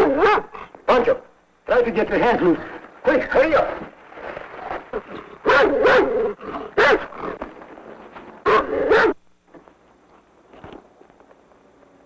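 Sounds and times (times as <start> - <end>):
dog barking and whining: 0.0 - 0.7, 4.9 - 7.4, 8.4 - 9.2.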